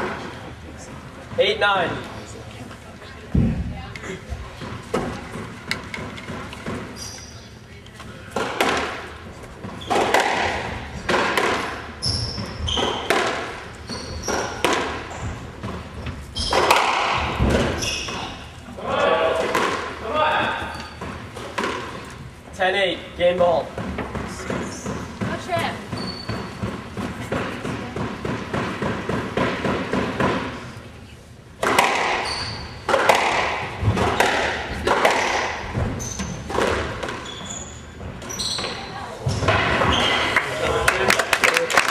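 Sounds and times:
shoes squeaking on wooden floor: 0:04.3 - 0:07.6, 0:09.4 - 0:11.1, 0:11.9 - 0:18.6, 0:20.3 - 0:22.4, 0:23.4 - 0:27.9, 0:32.2 - 0:32.9, 0:35.6 - 0:40.5
squash ball struck by racquets: 0:04.4 - 0:07.1, 0:08.3 - 0:18.5, 0:19.2 - 0:22.2, 0:23.5 - 0:30.7, 0:31.6 - 0:37.3.

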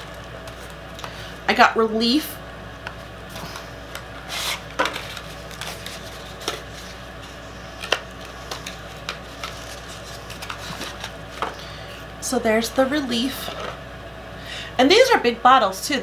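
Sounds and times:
packaging clicks and rustles: 0:03.3 - 0:11.6.

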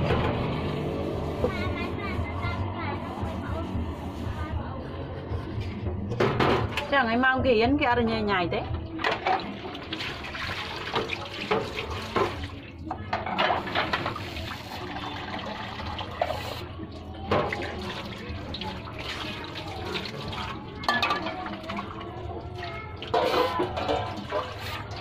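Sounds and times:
dishes knocking and clinking: 0:06.1 - 0:06.9, 0:20.8 - 0:21.5
tap water running and splashing: 0:09.0 - 0:25.0.

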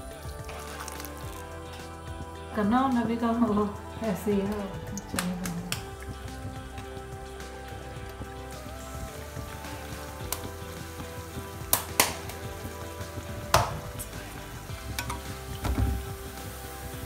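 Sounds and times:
bread sizzling in hot oil: 0:05.9 - 0:17.0
sharp pops: 0:11.7 - 0:12.5.

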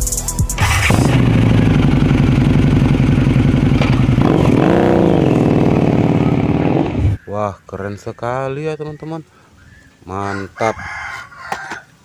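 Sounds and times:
motorcycle engine idling and revving: 0:00.6 - 0:07.2.

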